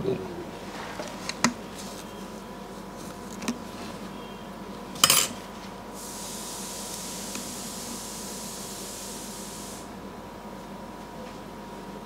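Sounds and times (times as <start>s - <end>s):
steady airy hiss: 5.8s - 10.3s.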